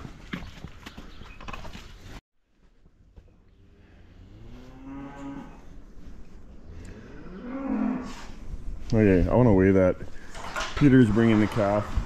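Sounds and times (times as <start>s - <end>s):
cow mooing: 4.1s - 5.8s, 6.9s - 8.3s.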